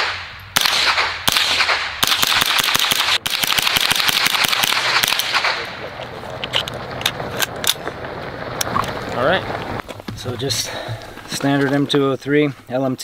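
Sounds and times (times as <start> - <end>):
rifle shots echoing: 0.0 - 9.8.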